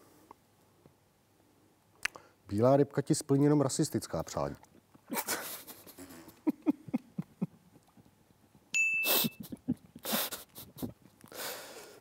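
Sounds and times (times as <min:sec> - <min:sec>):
stifled chuckles: 0:05.1 - 0:08.1, 0:09.1 - 0:11.3
electronic ding: 0:08.8 - 0:09.3.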